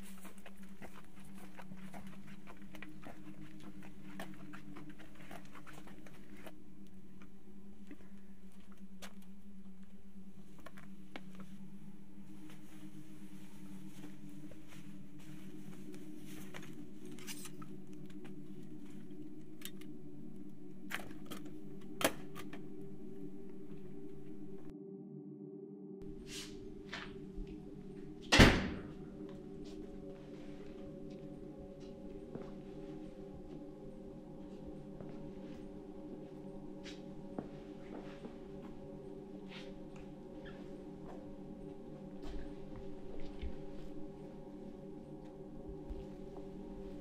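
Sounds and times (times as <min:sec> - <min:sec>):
low steady hum: 0:00.0 - 0:47.0
cloth rustling: 0:11.2 - 0:19.2.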